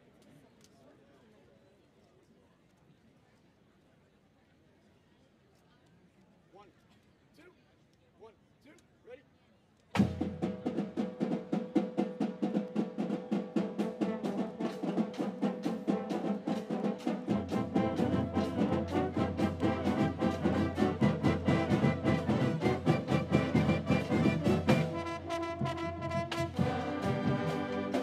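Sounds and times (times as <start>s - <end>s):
marching band drum beat: 10.0s - 28.0s
brass and saxophones: 13.8s - 28.0s.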